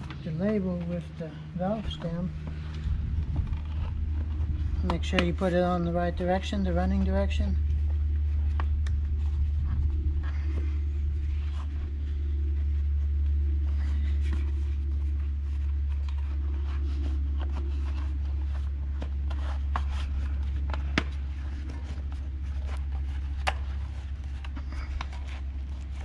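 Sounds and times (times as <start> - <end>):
low rumble: 0.0 - 26.0.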